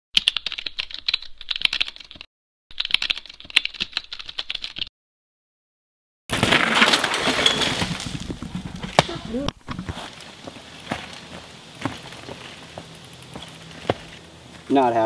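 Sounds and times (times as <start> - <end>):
bike rolling on dirt trail: 6.3 - 15.0.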